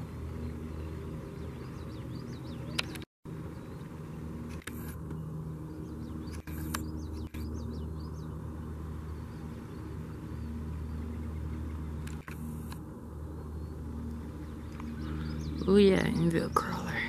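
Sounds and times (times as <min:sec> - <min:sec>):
faint hum: 0:00.0 - 0:17.0
low outdoor rumble: 0:00.0 - 0:17.0
sharp clicks: 0:02.7 - 0:03.1, 0:04.5 - 0:05.2, 0:06.3 - 0:07.5, 0:12.0 - 0:12.8.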